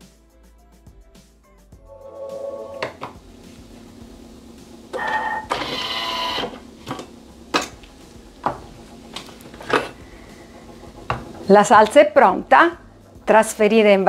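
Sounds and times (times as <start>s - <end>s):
low steady hum: 1.8s - 14.0s
motorized lid arms whirring: 4.9s - 7.0s.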